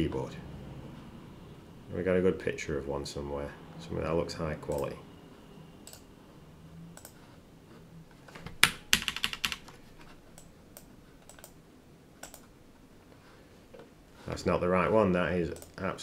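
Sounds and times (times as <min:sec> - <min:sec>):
keyboard keystrokes: 0:08.5 - 0:09.7.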